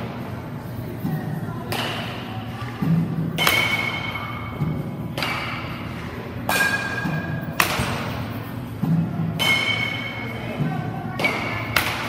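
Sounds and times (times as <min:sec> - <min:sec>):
bat cracking on ball: 0:06.4 - 0:08.3.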